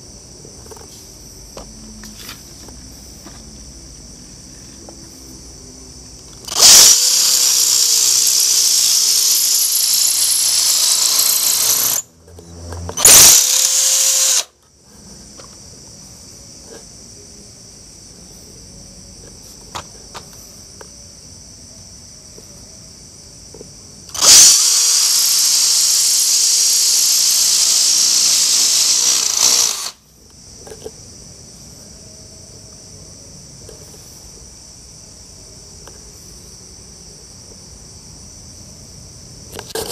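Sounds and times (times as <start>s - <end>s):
cordless drill boring into wall: 6.4s - 12.0s, 12.9s - 14.5s, 24.1s - 30.0s.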